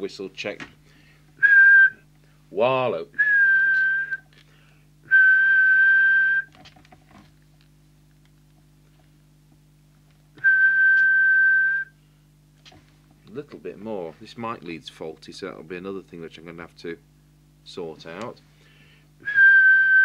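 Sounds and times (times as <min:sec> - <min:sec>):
faint steady hum: 0:00.0 - 0:20.0
man whistling high note: 0:01.4 - 0:02.0, 0:03.2 - 0:04.2, 0:05.1 - 0:06.5, 0:10.4 - 0:12.0, 0:19.2 - 0:20.0.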